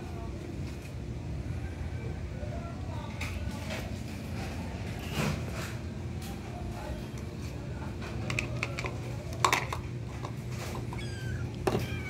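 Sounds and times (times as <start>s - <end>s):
kittens rustling and clicking: 3.1s - 12.0s
kitten mewing: 10.7s - 12.0s.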